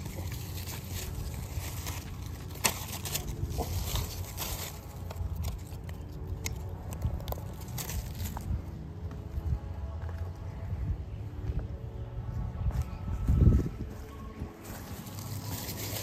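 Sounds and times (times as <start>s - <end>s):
leaves crackling underfoot: 0.0s - 9.2s, 12.7s - 16.0s.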